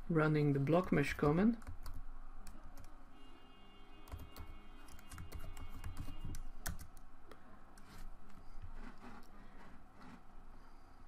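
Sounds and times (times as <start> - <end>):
typing on computer keyboard: 0.8 - 3.0, 4.1 - 7.0.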